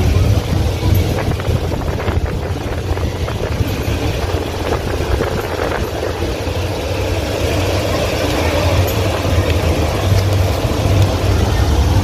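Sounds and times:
train interior low drone: 0.0 - 12.0
wheels clacking on track: 0.0 - 12.0.

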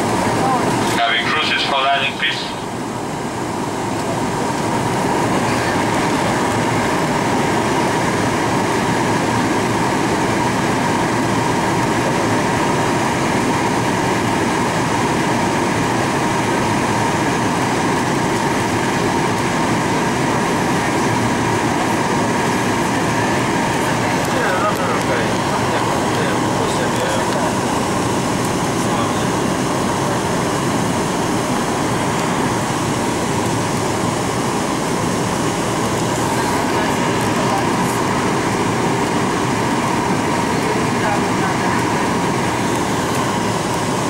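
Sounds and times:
jet cabin noise: 0.0 - 44.0
steady whine: 0.0 - 44.0.

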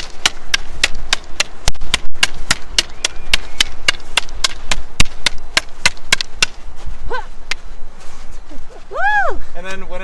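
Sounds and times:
wooden sticks clacking: 0.0 - 6.6.

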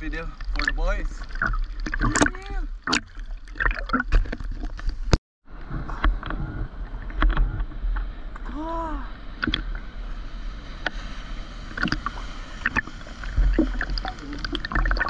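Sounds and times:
sea water lapping and sloshing: 0.0 - 5.1, 6.3 - 15.0
small splashes and clicks: 0.3 - 5.1
low rumble: 4.2 - 15.0.

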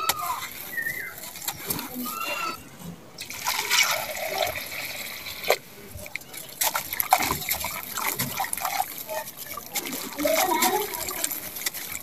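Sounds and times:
water pouring from plastic bucket: 3.2 - 12.0.

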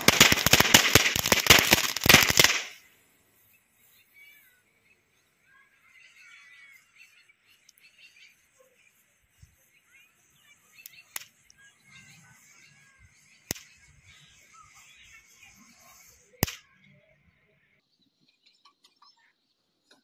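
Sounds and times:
firecracker bangs: 0.0 - 2.8.

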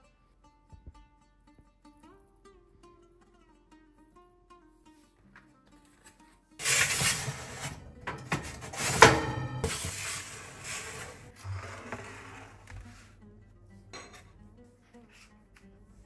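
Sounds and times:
metal tray scraping on rack: 6.6 - 13.1
sharp metallic clank: 8.0 - 10.1.

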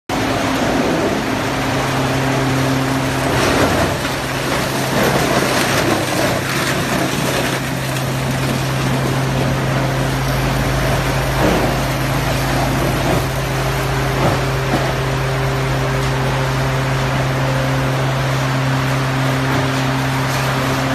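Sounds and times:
hammer mill humming: 0.1 - 20.9
wood clattering and crackling: 3.2 - 15.2.

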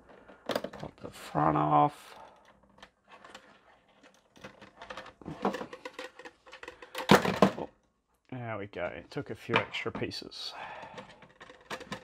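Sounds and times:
plastic bricks clicking and rattling: 2.2 - 7.7, 10.8 - 12.0.

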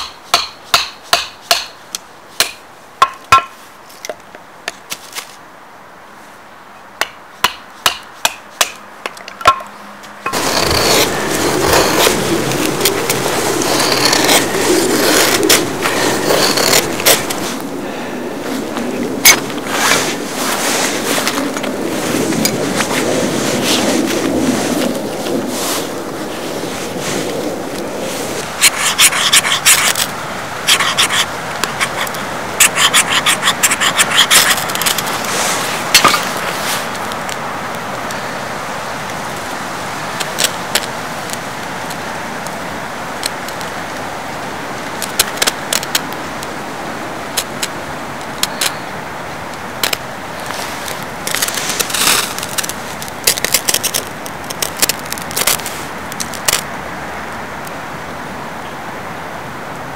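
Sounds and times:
ferro rod rasping strikes: 0.0 - 1.8
steady background hiss: 0.0 - 59.9
tinder crackling: 10.2 - 57.8.

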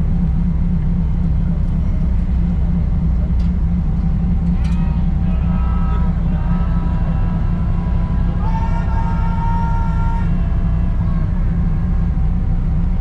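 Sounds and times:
ferry engines humming: 0.0 - 13.0.

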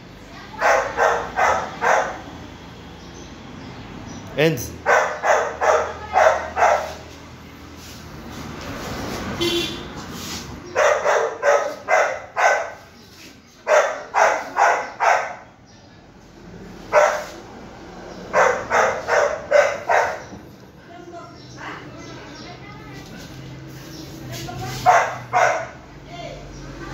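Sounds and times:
puppy barking: 0.5 - 2.4, 4.8 - 7.1, 10.7 - 12.9, 13.6 - 15.6, 16.9 - 17.4, 18.3 - 20.4, 24.8 - 25.9.

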